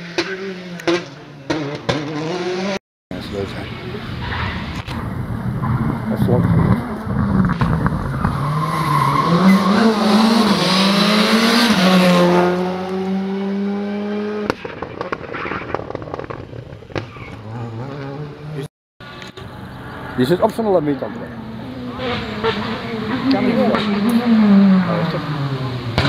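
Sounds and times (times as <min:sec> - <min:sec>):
rally car engine at full throttle: 0:00.0 - 0:20.2, 0:20.8 - 0:26.0
sharp cracks: 0:14.4 - 0:17.2.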